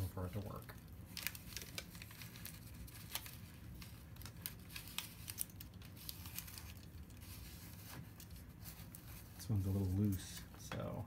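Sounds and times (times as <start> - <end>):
paper rustling: 0.0 - 11.0.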